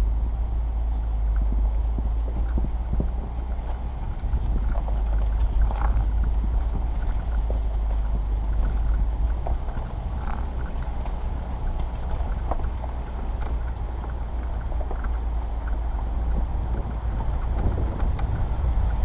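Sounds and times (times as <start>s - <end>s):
vehicle engine low rumble: 0.0s - 19.0s
wind on microphone: 0.0s - 19.0s
tyres crunching on stones: 1.2s - 19.0s.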